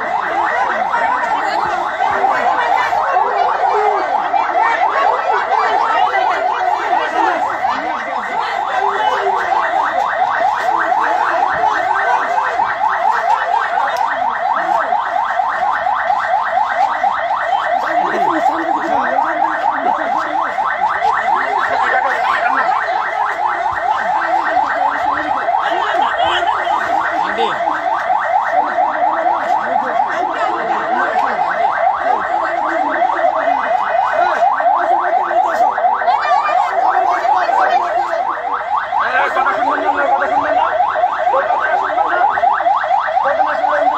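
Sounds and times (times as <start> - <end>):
faint crowd voices: 0.0 - 43.9
megaphone siren pulsing: 0.0 - 43.9.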